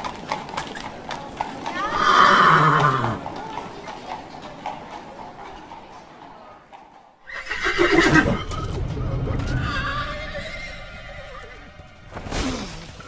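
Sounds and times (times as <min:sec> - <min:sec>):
horse whinny: 0:01.7 - 0:03.2, 0:07.2 - 0:08.7, 0:09.4 - 0:11.8.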